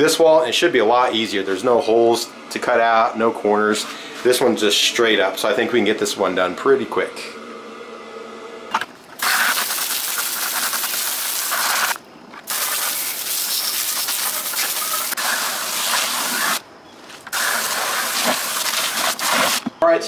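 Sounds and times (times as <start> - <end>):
hose spraying water into bucket: 9.2 - 16.6, 17.3 - 19.7.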